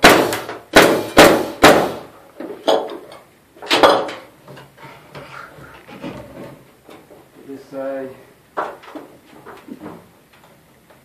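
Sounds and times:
nail gun shots: 0.0 - 2.1.

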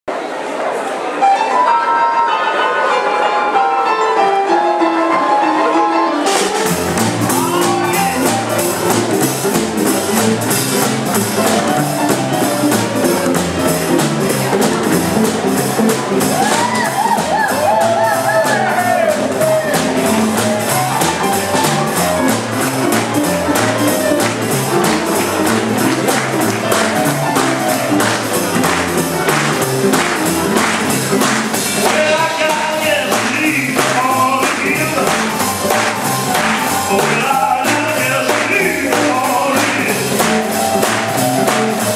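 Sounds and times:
piano: 0.1 - 41.9
person singing: 1.3 - 9.7, 30.3 - 41.9
drums: 6.2 - 41.9
upright bass: 6.2 - 41.9.

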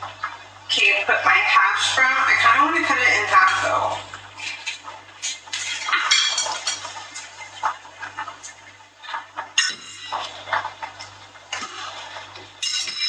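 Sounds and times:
dishes and utensils clinking: 4.4 - 7.7, 9.6 - 13.0.

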